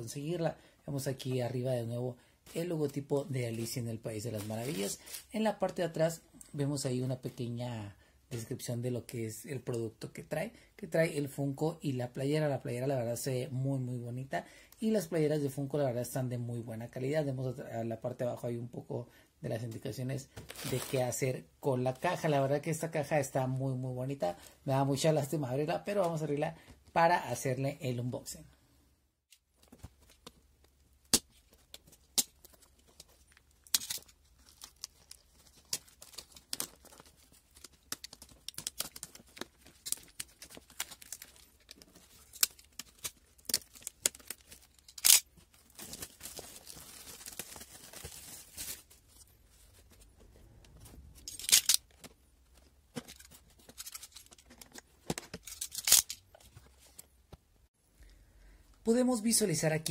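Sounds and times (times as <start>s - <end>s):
cellophane crackling and crinkling: 2.5s - 5.4s, 20.4s - 21.2s, 31.3s - 50.1s
plastic tearing rustle: 32.4s - 49.2s.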